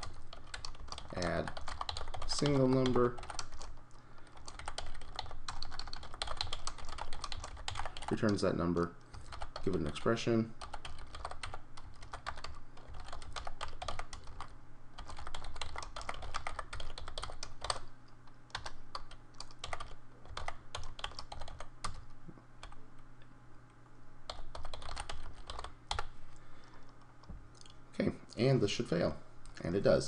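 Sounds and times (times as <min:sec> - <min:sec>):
typing on computer keyboard: 0:00.0 - 0:03.8, 0:04.4 - 0:08.4, 0:09.2 - 0:10.0, 0:10.6 - 0:17.9, 0:18.5 - 0:22.0, 0:24.3 - 0:26.1
steady low hum: 0:00.0 - 0:30.0.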